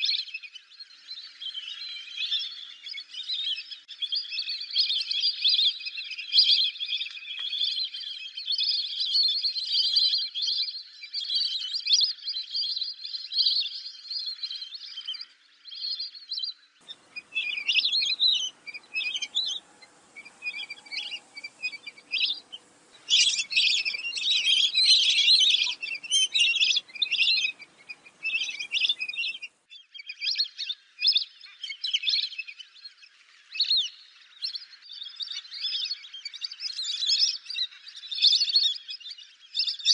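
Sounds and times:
faint hum: 16.8s - 29.5s
ducks whistling calls: 16.8s - 29.6s.

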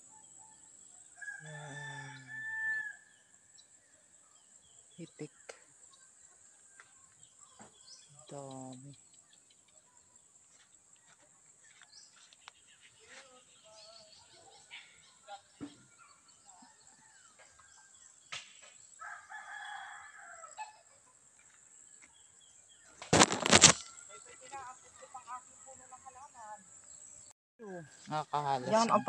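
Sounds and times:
rooster crowing: 1.2s - 3.2s, 19.0s - 20.8s.

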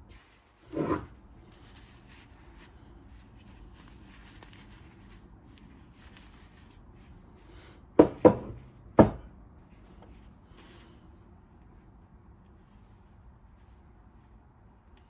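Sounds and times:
gloves rubbing metal: 0.0s - 7.8s
metal knocking on wooden workbench: 8.0s - 9.2s.

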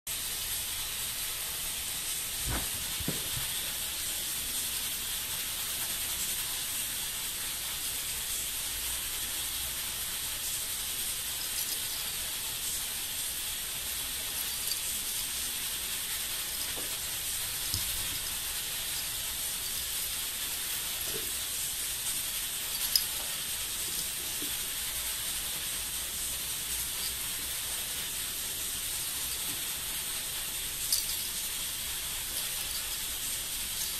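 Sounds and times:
high background hiss: 0.1s - 33.9s
kitten batting plastic ball: 2.4s - 3.8s.

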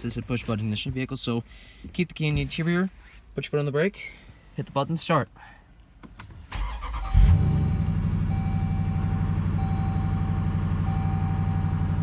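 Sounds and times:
car engine revving and idling: 6.9s - 12.0s.

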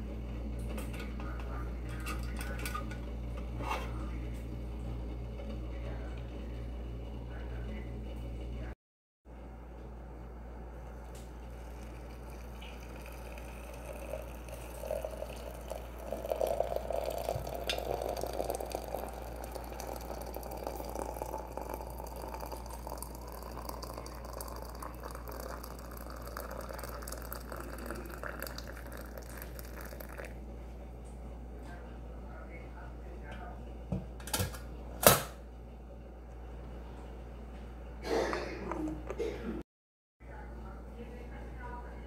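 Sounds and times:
water pouring into teapot: 11.0s - 30.4s.

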